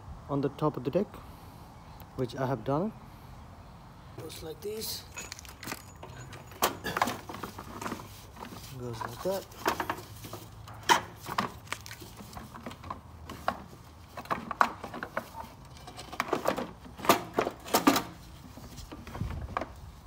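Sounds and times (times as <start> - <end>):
lawnmower engine knocks and clunks: 5.2 - 19.8.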